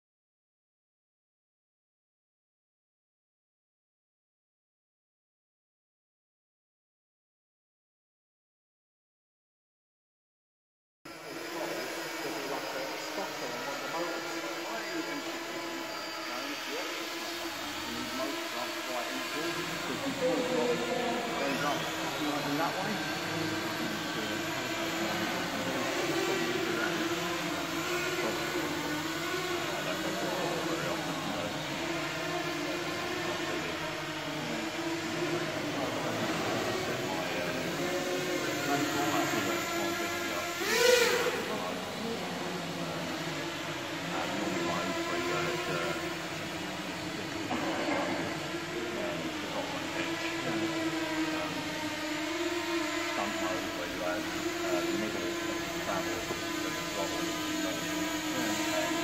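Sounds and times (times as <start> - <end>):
model aircraft propellers buzzing: 11.1 - 59.0.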